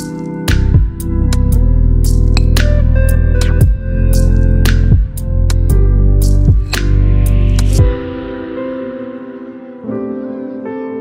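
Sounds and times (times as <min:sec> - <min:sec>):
calm instrumental music: 0:00.0 - 0:11.0
deep bass: 0:00.5 - 0:08.4.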